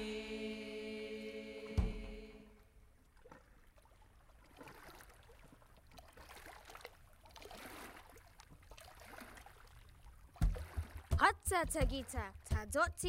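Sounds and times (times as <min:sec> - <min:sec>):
sea water lapping: 0:01.8 - 0:13.0.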